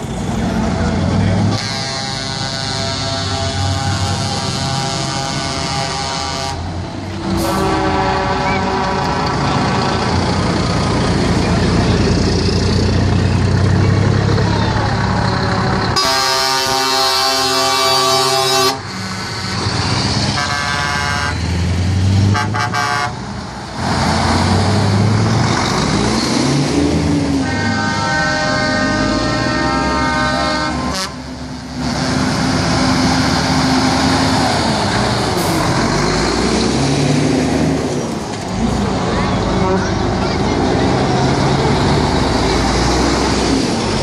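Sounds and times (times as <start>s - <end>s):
diesel engine running: 0.0s - 44.0s
truck air horn blasts: 1.5s - 9.5s, 16.0s - 18.9s, 20.3s - 21.4s, 22.2s - 23.2s, 27.4s - 31.4s.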